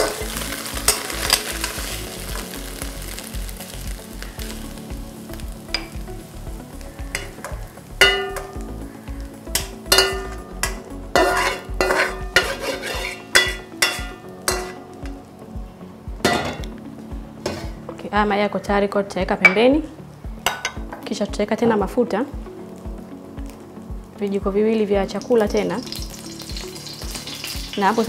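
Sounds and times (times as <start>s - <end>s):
light sizzle from pan: 0.0s - 15.5s, 19.4s - 28.0s
plastic spatula scraping a wok: 11.2s - 13.4s.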